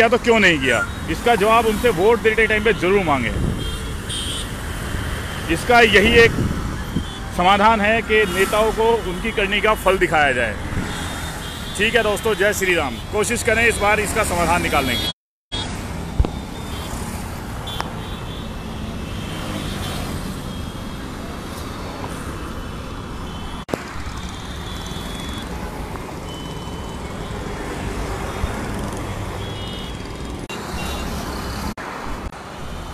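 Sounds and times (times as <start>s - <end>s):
road traffic hum: 0.0s - 32.9s.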